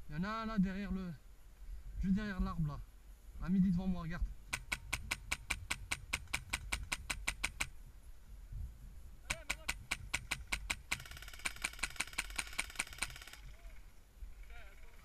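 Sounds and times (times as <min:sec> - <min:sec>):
airsoft rifle shots: 0:04.5 - 0:07.7, 0:09.3 - 0:13.6.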